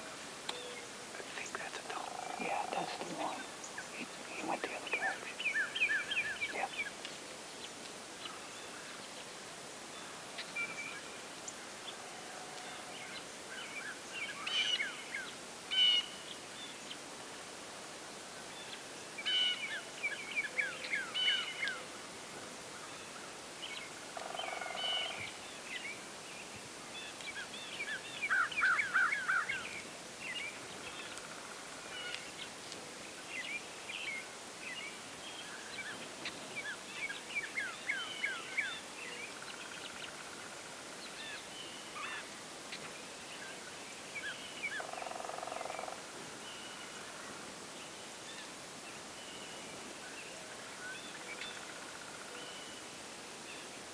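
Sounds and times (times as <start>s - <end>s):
low steady bird call: 0.0s - 17.1s, 18.2s - 53.9s
songbirds chirping and trilling: 0.2s - 17.1s, 18.2s - 53.9s.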